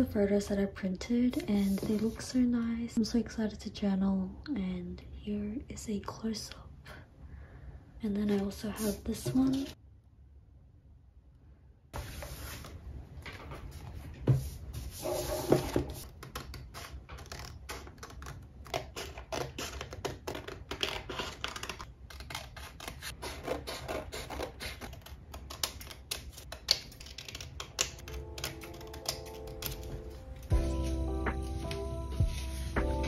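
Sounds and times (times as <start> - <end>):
scissors snipping paper: 16.1 - 30.2
music: 28.0 - 33.0.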